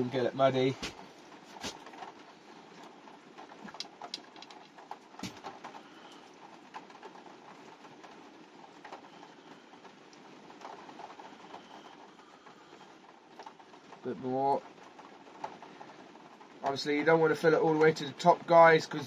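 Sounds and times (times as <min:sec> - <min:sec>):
faint steady background: 0:00.0 - 0:19.0
small plastic parts clicking: 0:03.7 - 0:06.3.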